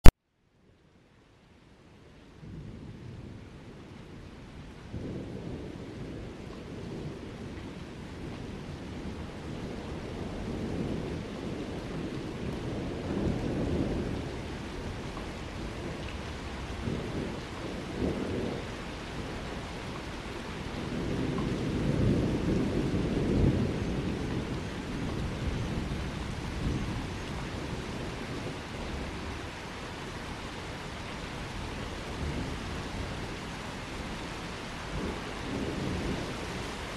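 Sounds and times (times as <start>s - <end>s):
steady rain: 0.0s - 36.9s
thunder rumbling: 2.4s - 36.9s.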